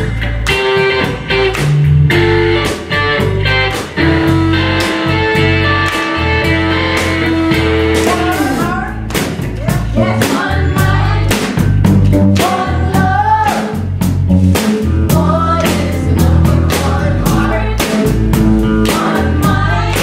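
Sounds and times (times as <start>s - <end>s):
bass guitar: 0.0s - 20.0s
drum kit beat: 0.0s - 20.0s
electric guitar: 0.0s - 20.0s
voices singing: 7.1s - 13.9s, 15.0s - 20.0s.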